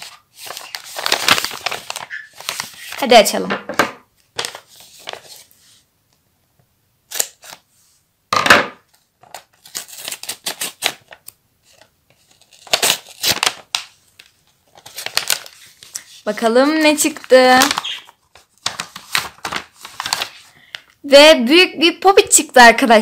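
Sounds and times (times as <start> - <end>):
paper rustling and crinkling: 0.0 - 3.4, 4.3 - 5.8, 8.9 - 20.9.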